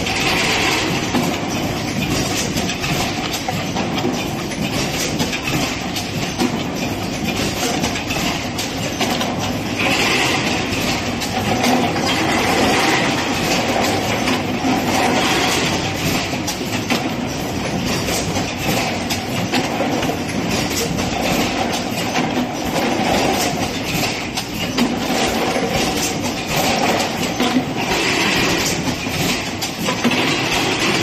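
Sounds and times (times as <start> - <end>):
continuous machine hum: 0.0 - 31.0
machine clattering: 0.0 - 31.0.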